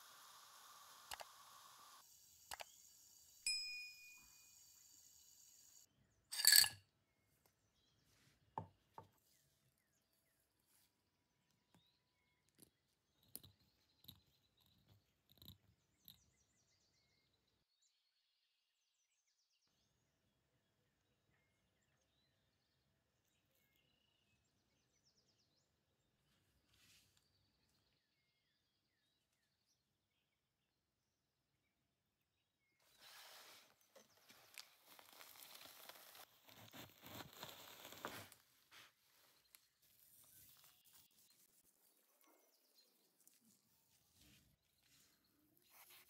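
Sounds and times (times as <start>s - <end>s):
small parts and tools clicking: 12.5s - 16.3s.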